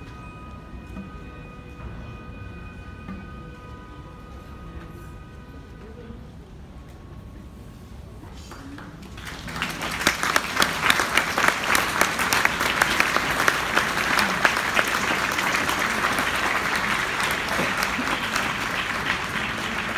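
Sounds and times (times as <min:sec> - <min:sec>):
audience applause: 0:08.6 - 0:19.9.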